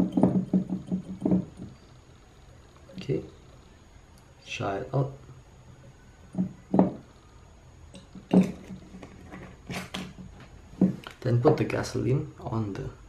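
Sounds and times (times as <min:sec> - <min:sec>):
small objects knocking on tabletop: 0:00.0 - 0:01.8, 0:06.3 - 0:07.0.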